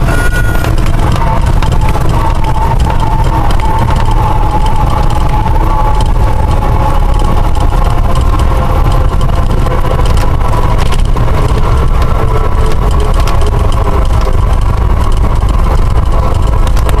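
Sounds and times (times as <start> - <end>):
airplane engine and propeller: 0.0 - 17.0.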